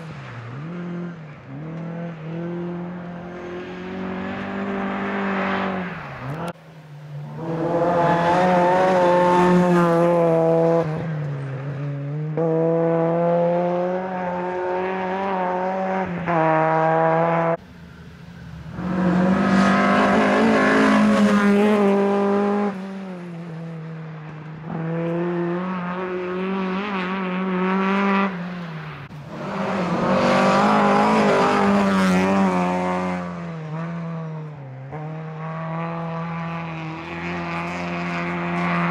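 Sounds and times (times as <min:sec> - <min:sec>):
rally car engines passing at high revs: 0:00.0 - 0:38.9.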